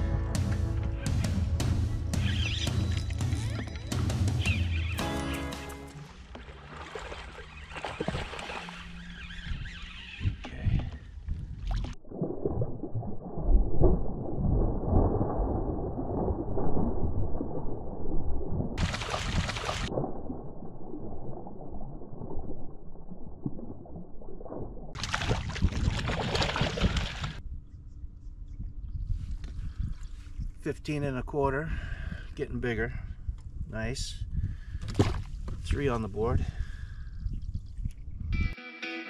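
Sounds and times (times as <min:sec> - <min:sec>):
water sloshing against kayak: 0:05.5 - 0:14.0
fish splashing in water: 0:06.1 - 0:09.4, 0:18.8 - 0:20.0, 0:25.0 - 0:27.4.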